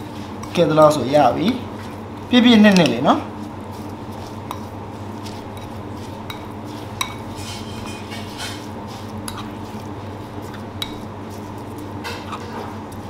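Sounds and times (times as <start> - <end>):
steady low hum: 0.0 - 13.0
utensils clinking against dishes: 2.5 - 3.2, 5.6 - 9.6, 12.0 - 12.8
utensils scraping dishes: 5.5 - 9.6, 12.0 - 12.8.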